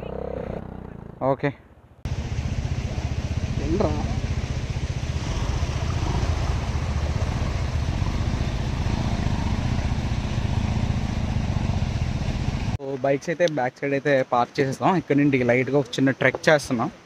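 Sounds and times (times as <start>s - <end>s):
motorcycle engine running: 2.1s - 12.8s.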